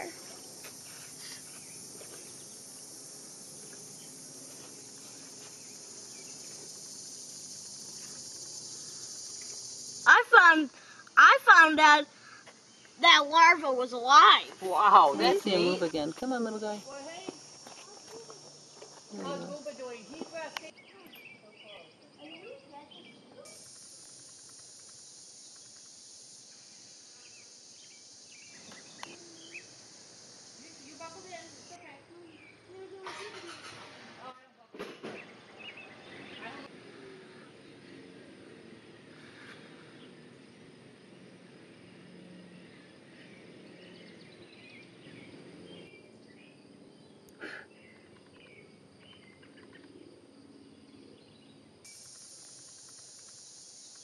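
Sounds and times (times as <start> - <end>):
insects chorus: 0.0 - 54.0
bird chirps: 42.5 - 50.0.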